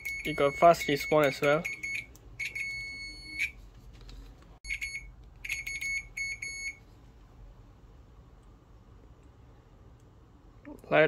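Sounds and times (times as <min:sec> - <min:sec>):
multimeter continuity buzzer beeping: 0:00.0 - 0:03.5, 0:04.7 - 0:06.8.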